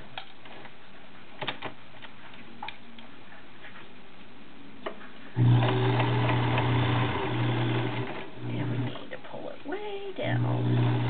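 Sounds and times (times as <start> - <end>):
sewing machine running: 5.4 - 8.9, 10.4 - 11.0.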